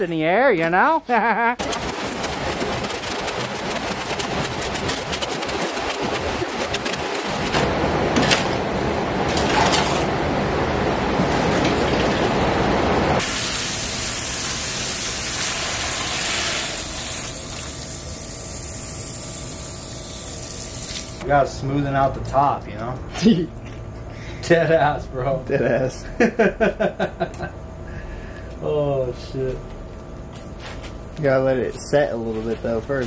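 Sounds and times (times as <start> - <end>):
hose spraying water on concrete: 13.2 - 21.2.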